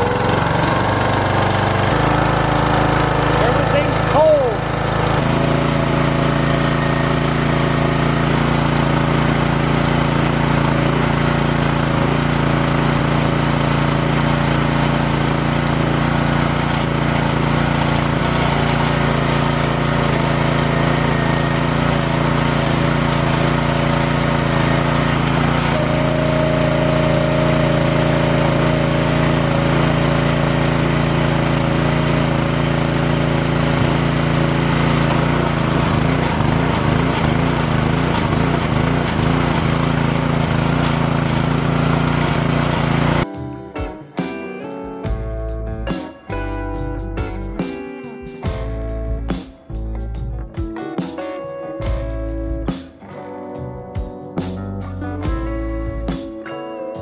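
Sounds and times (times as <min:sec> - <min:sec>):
small gasoline engine running: 0:00.0 - 0:43.3.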